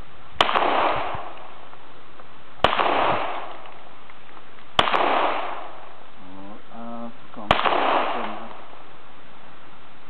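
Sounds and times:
pistol shots with echo: 0.4s - 1.6s, 2.6s - 3.8s, 4.8s - 5.8s, 7.4s - 8.8s.

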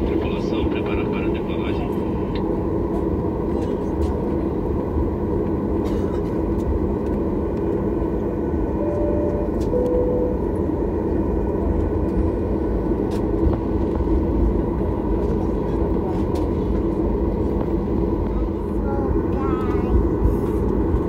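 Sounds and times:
jet engine and rolling rumble: 0.0s - 21.0s
two-note chime: 8.8s - 10.5s.

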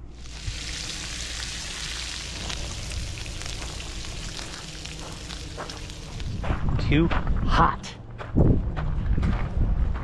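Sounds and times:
bacon sizzling on a griddle: 0.1s - 6.4s.

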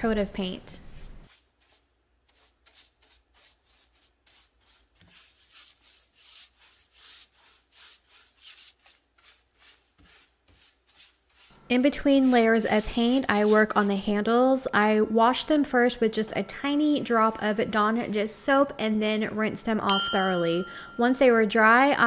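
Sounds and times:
paintbrush strokes on wood: 0.8s - 14.2s, 16.5s - 18.8s.

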